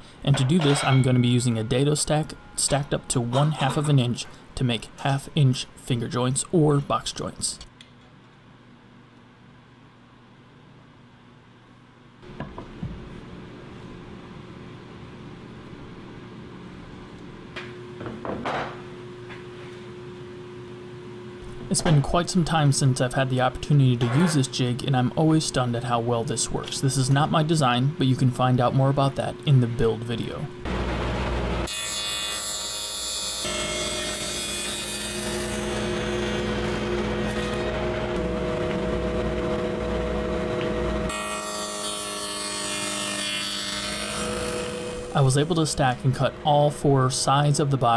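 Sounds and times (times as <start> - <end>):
steady machine hum: 0.0 - 7.7, 8.5 - 32.5, 33.2 - 47.9
table saw cutting plywood: 30.7 - 46.5.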